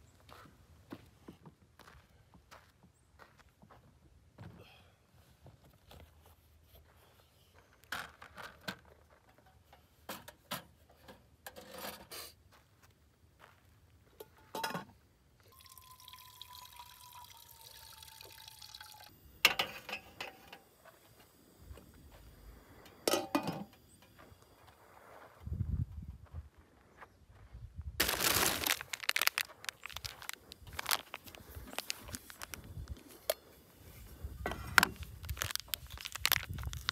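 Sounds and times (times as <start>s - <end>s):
water poured into pot: 15.5s - 19.1s.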